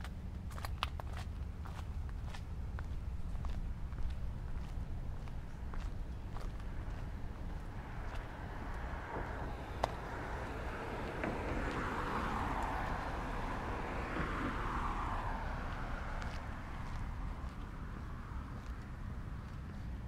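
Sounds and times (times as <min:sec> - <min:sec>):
steady low rumble: 0:00.0 - 0:20.0
car passing by: 0:05.4 - 0:20.0.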